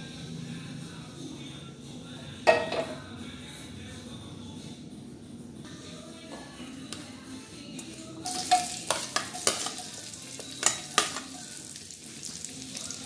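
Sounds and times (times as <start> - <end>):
onions sizzling in oil: 8.2 - 13.0
spoon clicking on plate: 8.3 - 11.3.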